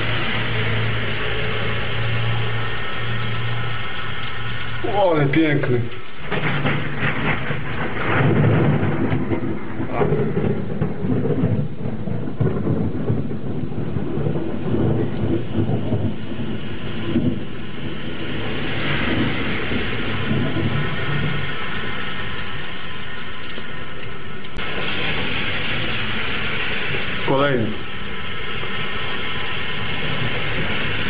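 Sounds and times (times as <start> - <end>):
rain hiss: 0.0 - 31.0
rolling thunder rumbling: 0.0 - 31.0.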